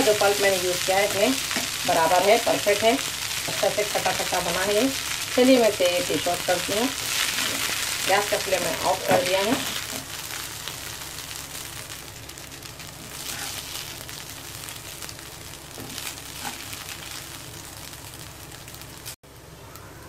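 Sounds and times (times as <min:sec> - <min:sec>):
rice crackling and sizzling: 0:00.0 - 0:19.8
metal spatula scraping a pan: 0:13.2 - 0:13.7, 0:16.4 - 0:16.7.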